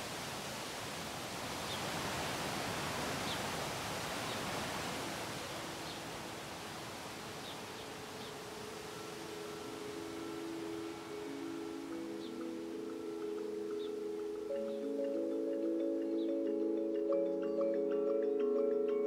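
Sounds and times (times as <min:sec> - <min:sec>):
outdoor hiss: 0:00.0 - 0:18.4
soft held music tones: 0:04.3 - 0:19.0.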